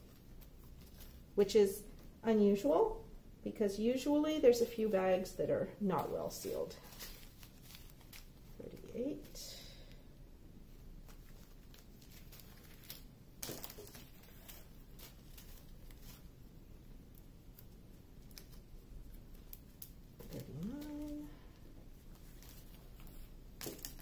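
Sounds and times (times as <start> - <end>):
plastic bags crinkling: 6.0 - 9.0, 11.0 - 16.4
person humming: 20.2 - 21.6.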